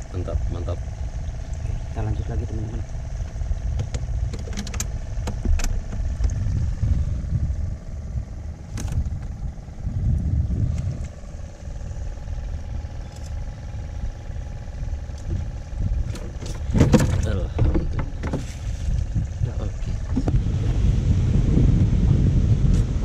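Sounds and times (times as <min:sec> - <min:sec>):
faint hum: 0:00.0 - 0:23.0
low rumble: 0:00.0 - 0:23.0
knocks and clatter on a boat: 0:02.5 - 0:06.6, 0:08.7 - 0:09.4, 0:15.1 - 0:20.4.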